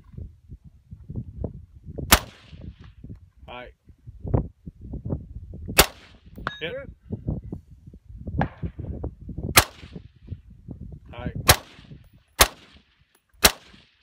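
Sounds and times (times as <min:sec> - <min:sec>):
rifle shots: 0:02.1 - 0:02.6, 0:05.8 - 0:06.2, 0:09.6 - 0:10.0, 0:11.5 - 0:14.0.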